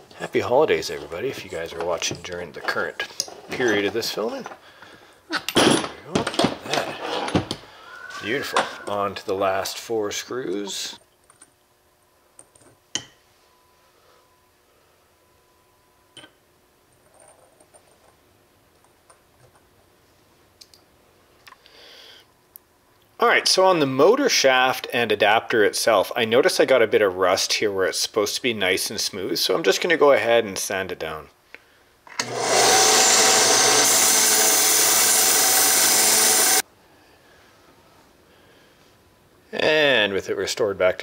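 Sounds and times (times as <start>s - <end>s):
belt sander grinding metal: 32.2s - 36.6s.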